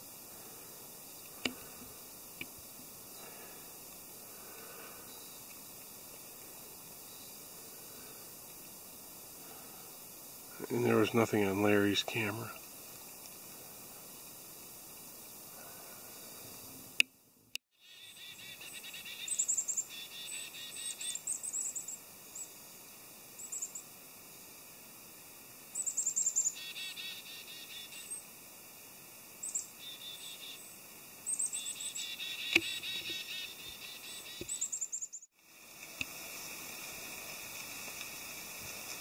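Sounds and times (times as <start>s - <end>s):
songbirds calling: 17.8s - 22.5s, 25.8s - 28.2s, 29.4s - 30.7s, 31.3s - 35.3s.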